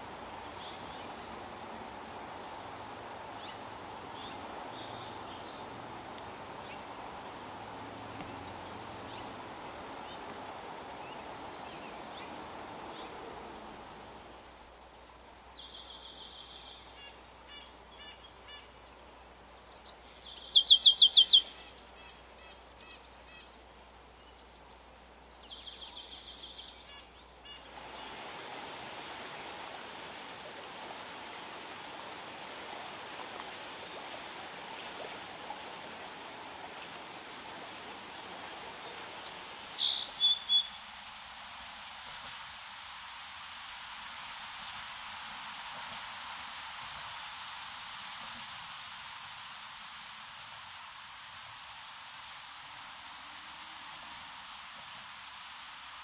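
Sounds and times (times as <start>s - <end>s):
songbird singing: 0.0s - 28.4s, 34.7s - 40.9s
bird chirps: 19.6s - 22.1s, 38.4s - 40.8s.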